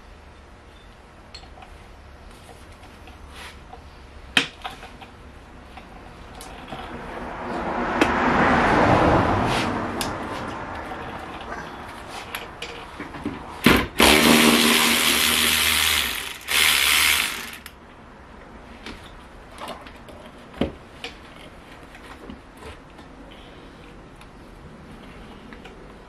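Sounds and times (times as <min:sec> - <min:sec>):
handheld power tool whirring: 0:13.7 - 0:17.8.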